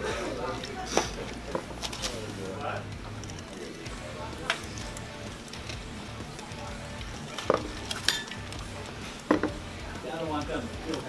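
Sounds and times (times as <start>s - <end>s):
background music: 0.0s - 11.0s
cutlery and dishes clinking: 7.3s - 8.5s, 9.2s - 9.6s.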